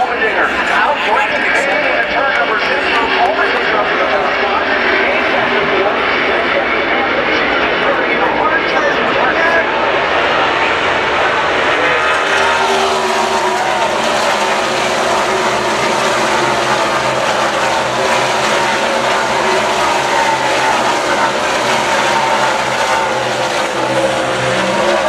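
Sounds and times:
race cars passing at speed: 0.0 - 25.0.

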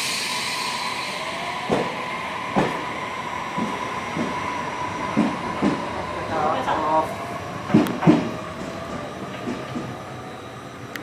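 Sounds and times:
air hiss: 0.0 - 2.9
electric train humming: 0.0 - 11.0.

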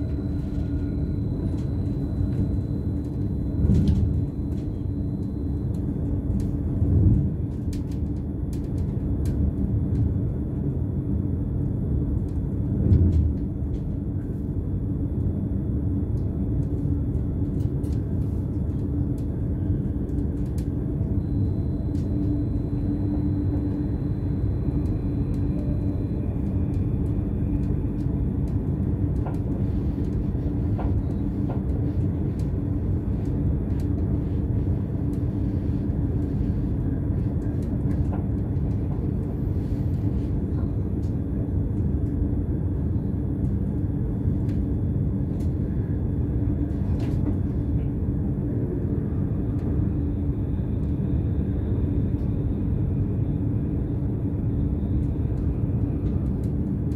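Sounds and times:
constant hum: 0.0 - 56.9
wheels rumbling on rail: 0.0 - 56.9.

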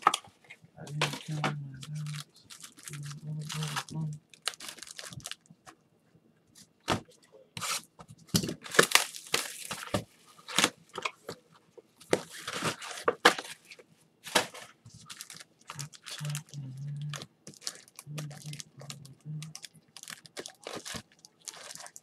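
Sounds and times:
plastic wrapping crinkling and tearing: 0.9 - 5.5, 8.4 - 11.1, 12.1 - 22.0.

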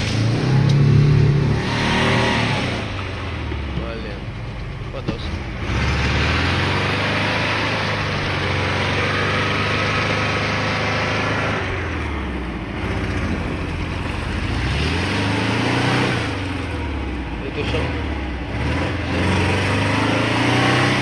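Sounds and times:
car engine revving high: 0.0 - 3.7, 5.3 - 21.0.

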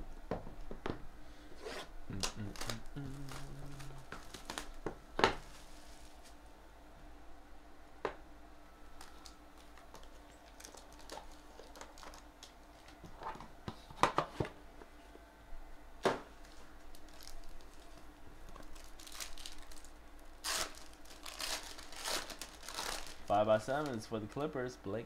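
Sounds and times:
shrink-wrap being pulled off: 2.1 - 4.8, 18.6 - 24.4.

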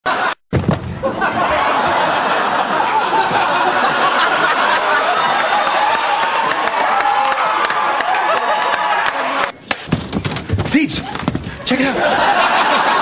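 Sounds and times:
audience laughing: 0.1 - 6.3, 11.4 - 13.0.

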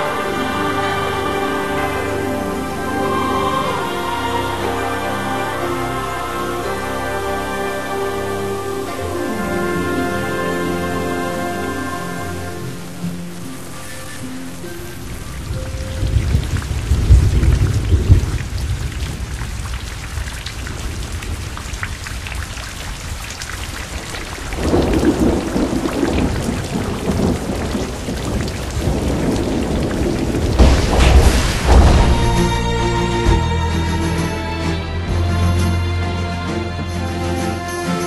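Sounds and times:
heavy rain: 0.0 - 38.0
thunder rolling: 15.0 - 33.7.

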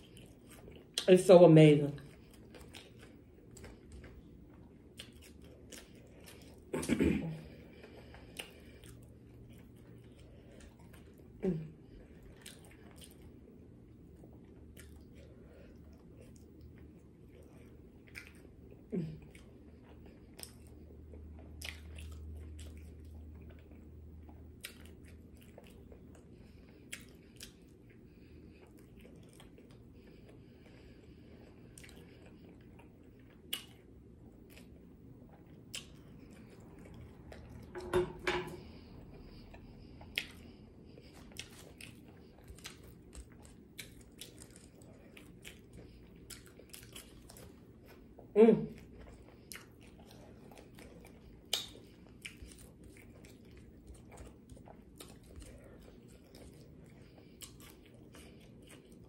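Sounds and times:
chewing and biting food: 0.0 - 59.0
wet mouth smacks: 51.4 - 52.4.

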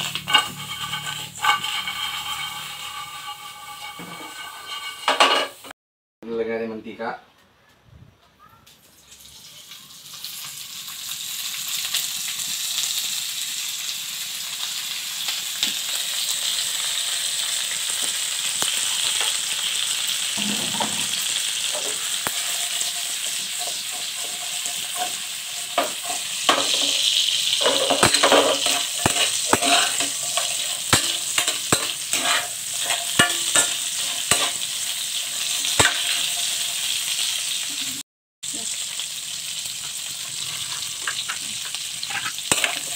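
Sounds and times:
fish sizzling in a wok: 0.0 - 5.7, 8.6 - 42.9
spatula scraping a pan: 0.0 - 5.7, 20.4 - 37.2, 39.7 - 42.9.

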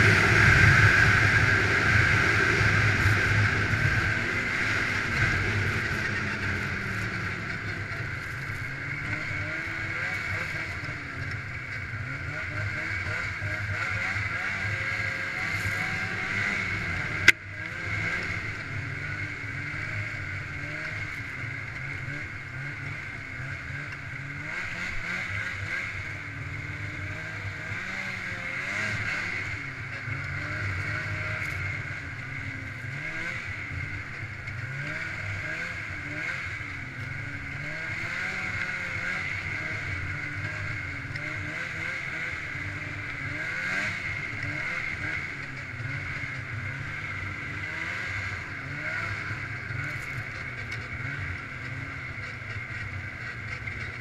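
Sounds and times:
steady high whine: 0.0 - 23.4
snowmobile engine running: 0.0 - 54.0.

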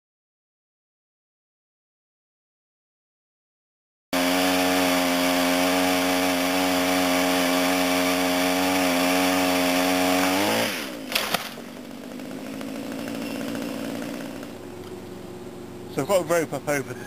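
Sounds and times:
pole saw running: 4.2 - 14.6
sharp cracks: 10.7 - 14.6.

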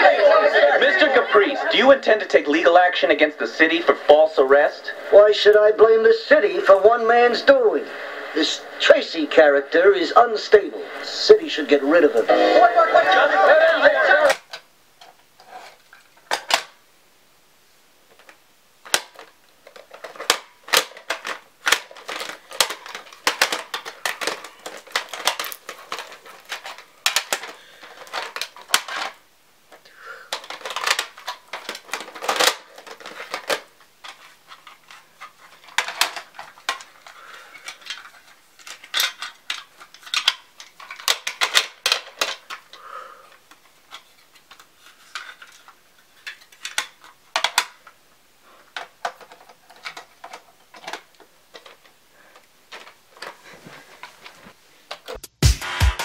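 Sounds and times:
plastic cassette cases clacking: 13.5 - 16.8, 18.1 - 55.2.

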